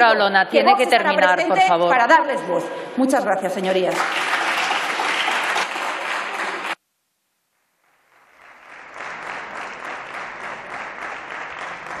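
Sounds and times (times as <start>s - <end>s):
applause in a chamber: 3.7s - 6.8s, 7.9s - 12.0s.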